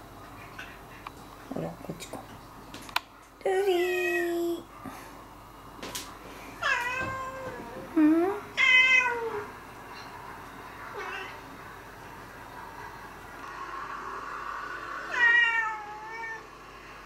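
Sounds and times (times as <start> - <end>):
cat meowing: 15.1 - 16.4.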